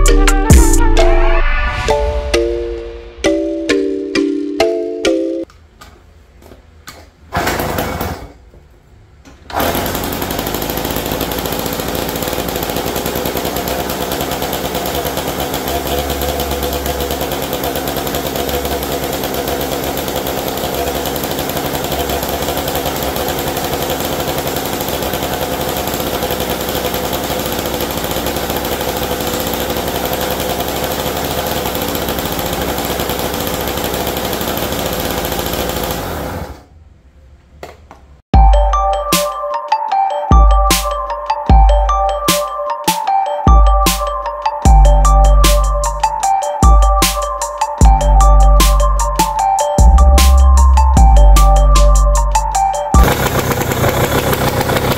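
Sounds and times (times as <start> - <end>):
two-stroke engine running: 9.5 - 36.6, 44.7 - 54.9.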